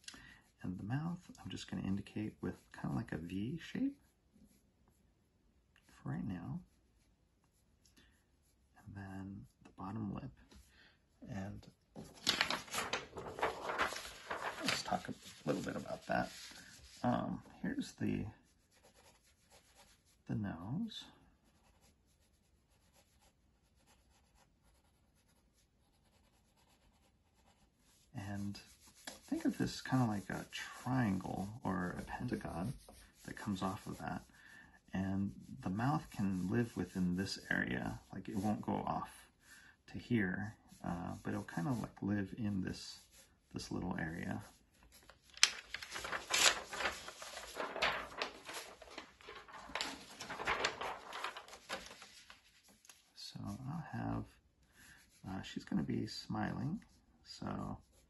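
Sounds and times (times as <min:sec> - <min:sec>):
paper rubbing on board: 0:12.0 - 0:20.2, 0:21.5 - 0:34.3, 0:35.4 - 0:38.7, 0:40.6 - 0:53.6
pencil scratching on paper: 0:18.4 - 0:20.2, 0:21.4 - 0:34.4.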